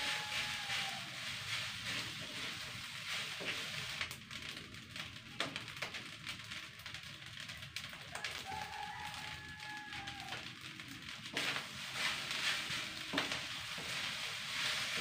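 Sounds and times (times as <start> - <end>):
spatula scraping a wok: 0.0 - 4.0, 11.4 - 15.0
frying sizzle: 0.0 - 15.0.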